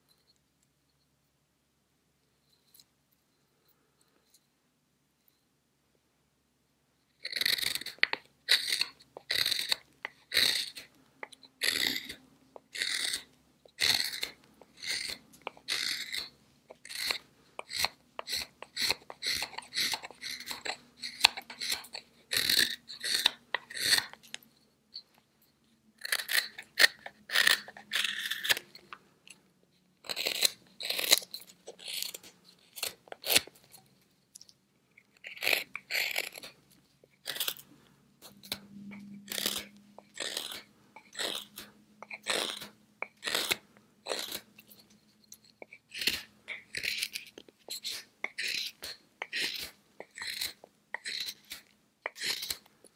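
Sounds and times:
knife carving wood scrapes: 0:07.1 - 0:24.4, 0:26.0 - 0:29.0, 0:30.0 - 0:33.9, 0:35.0 - 0:52.9.

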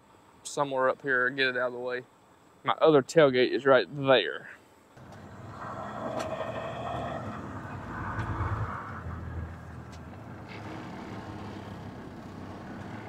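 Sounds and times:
diesel farm machine engine: 0:05.0 - 0:13.0.

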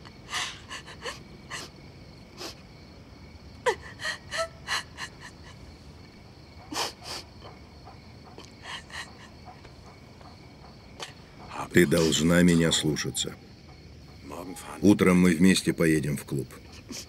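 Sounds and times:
woman sobbing: 0:00.0 - 0:01.8, 0:03.6 - 0:05.8, 0:06.7 - 0:07.4, 0:08.4 - 0:09.5, 0:16.7 - 0:17.0
woman whimpering: 0:00.2 - 0:01.7, 0:03.7 - 0:05.6, 0:06.7 - 0:07.3, 0:08.4 - 0:09.4.

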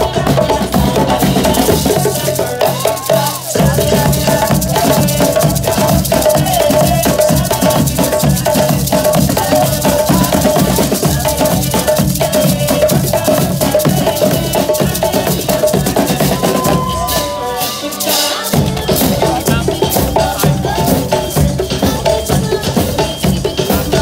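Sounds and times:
drum ensemble playing: 0:00.0 - 0:24.0
shakers rattling: 0:00.0 - 0:24.0.

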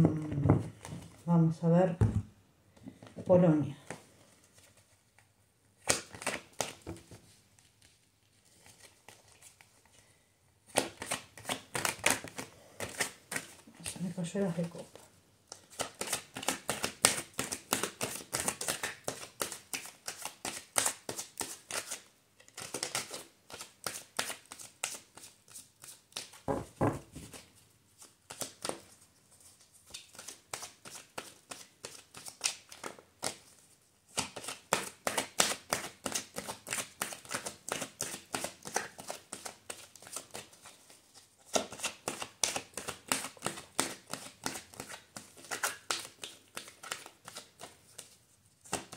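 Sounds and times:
cards flicking and slapping: 0:05.8 - 0:07.2, 0:10.7 - 0:14.0, 0:15.5 - 0:26.4, 0:28.0 - 0:28.9, 0:29.8 - 0:33.4, 0:34.1 - 0:40.8, 0:41.5 - 0:48.9.

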